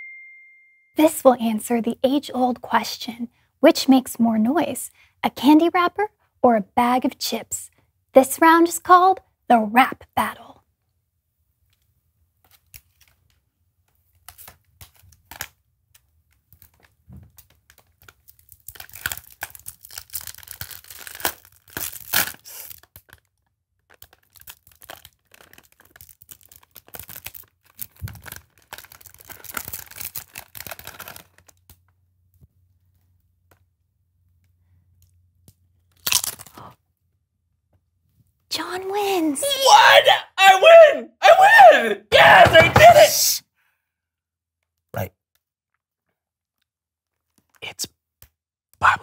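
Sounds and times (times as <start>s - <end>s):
foil snack bag crinkling: 17.4s - 31.8s, 35.9s - 36.7s.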